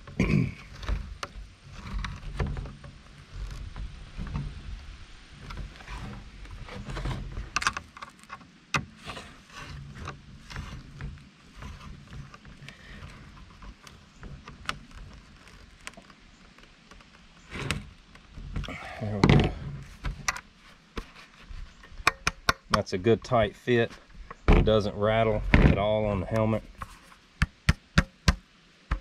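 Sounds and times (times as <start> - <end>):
low steady rumble: 0.0 - 20.9.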